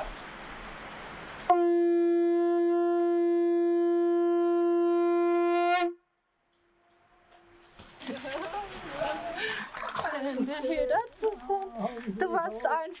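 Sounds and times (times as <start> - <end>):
conch shell blown: 1.5 - 7.6.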